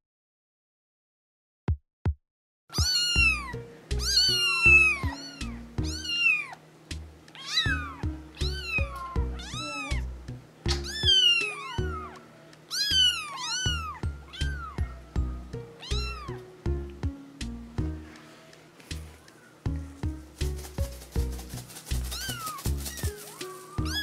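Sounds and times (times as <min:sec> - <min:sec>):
kittens meowing: 0:02.7 - 0:06.6, 0:07.3 - 0:16.5, 0:22.0 - 0:24.0.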